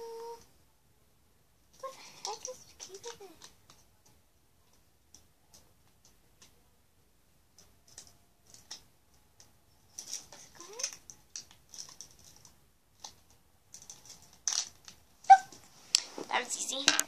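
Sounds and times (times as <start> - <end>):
plastic packaging clicks and crinkles: 1.9 - 3.9, 7.6 - 15.1.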